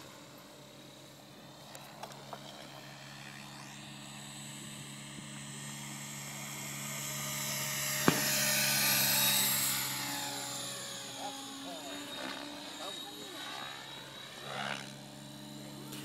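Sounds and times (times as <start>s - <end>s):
model helicopter rotor whine: 0.0s - 16.0s
sharp crack: 8.0s - 8.4s.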